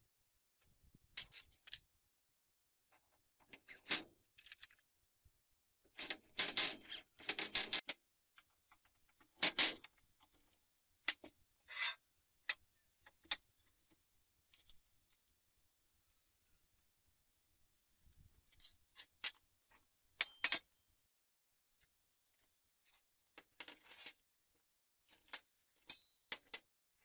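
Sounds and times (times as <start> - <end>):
metal tools clinking and scraping: 11.1 - 12.6.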